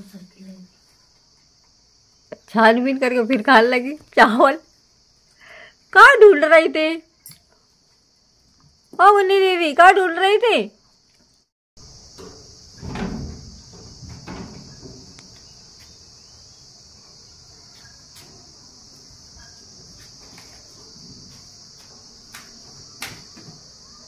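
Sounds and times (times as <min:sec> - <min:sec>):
crickets chirring: 0:00.0 - 0:24.0.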